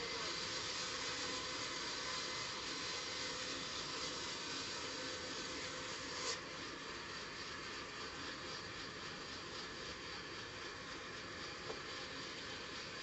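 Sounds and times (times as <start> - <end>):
band saw cutting through log: 0.0 - 6.8.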